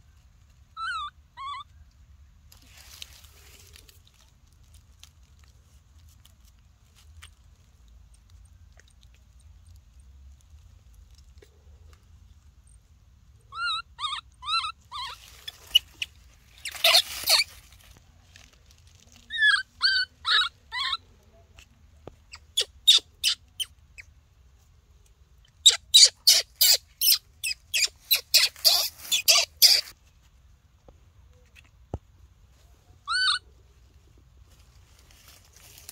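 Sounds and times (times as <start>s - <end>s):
baby monkey crying: 0.8s - 1.7s, 13.5s - 17.5s, 19.3s - 21.0s, 22.3s - 23.7s, 25.6s - 29.9s, 33.1s - 33.4s.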